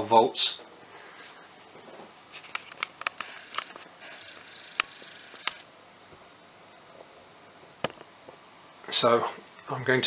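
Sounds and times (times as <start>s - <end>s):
sharp clicks: 2.5s - 5.7s
camera zoom motor whirr: 3.1s - 5.7s.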